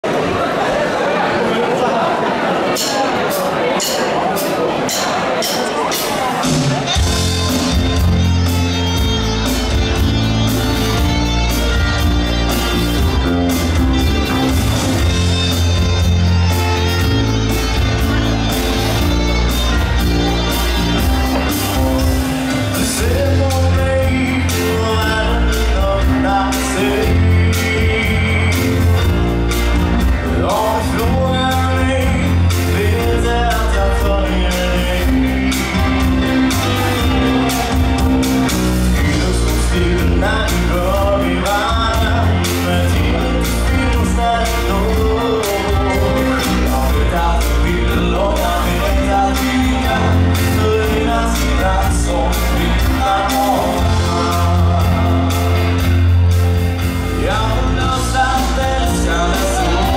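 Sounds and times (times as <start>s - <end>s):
live band playing: 0.0s - 59.9s
man singing into a microphone: 21.0s - 37.5s, 38.8s - 59.9s.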